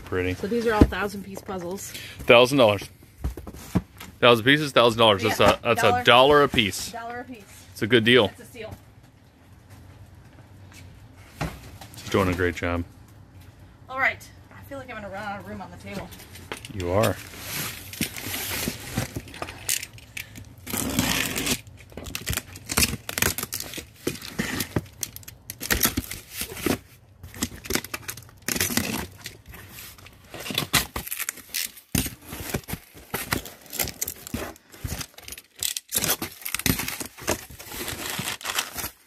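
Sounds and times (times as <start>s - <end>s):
plastic tearing and crinkling: 16.8s - 39.0s
box cutter slitting tape: 20.6s - 29.4s, 30.4s - 39.0s.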